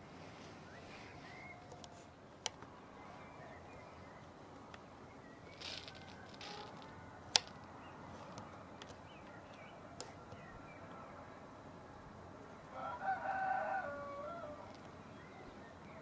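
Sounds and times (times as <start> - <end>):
distant bird chirps: 0.4 - 11.4.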